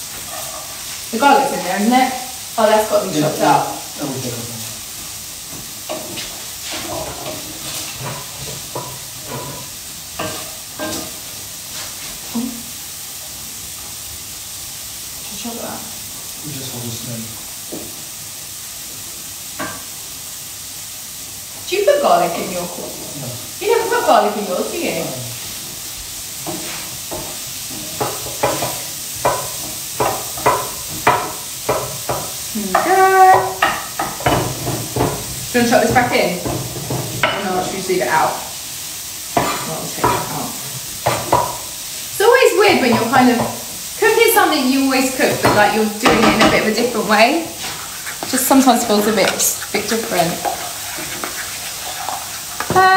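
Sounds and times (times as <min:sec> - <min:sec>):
food sizzling in a frying pan: 0:00.0 - 0:52.9
kitchen utensils clattering: 0:05.9 - 0:11.2, 0:45.0 - 0:52.9.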